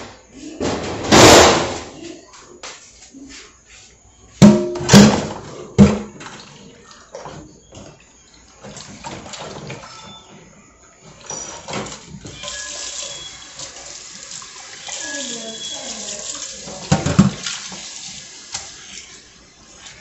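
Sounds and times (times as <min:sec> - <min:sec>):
pots and dishes clattering: 0:04.4 - 0:13.9, 0:14.7 - 0:17.9.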